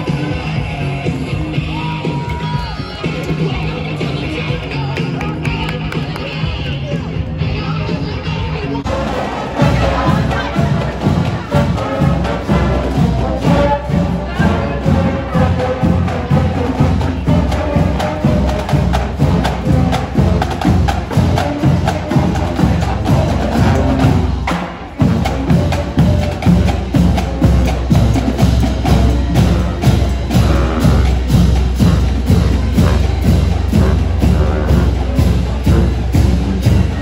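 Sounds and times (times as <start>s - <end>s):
bass drums: 0.0s - 37.0s
brass melody: 8.8s - 37.0s
cymbals: 8.8s - 37.0s
snare drums: 8.8s - 37.0s.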